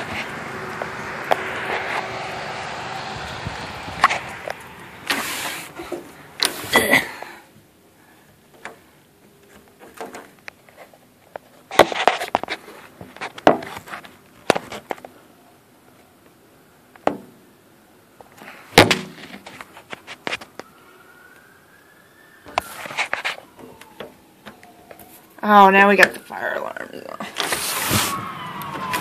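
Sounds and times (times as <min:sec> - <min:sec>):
faint siren: 0:00.0 - 0:06.4, 0:19.4 - 0:29.0.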